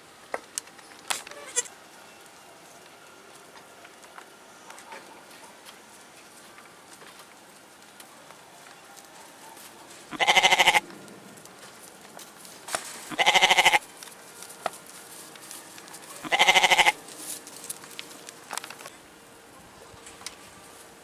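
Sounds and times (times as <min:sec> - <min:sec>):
goat bleating: 0:01.3 - 0:01.7, 0:10.1 - 0:10.8, 0:13.1 - 0:13.8, 0:16.2 - 0:17.0.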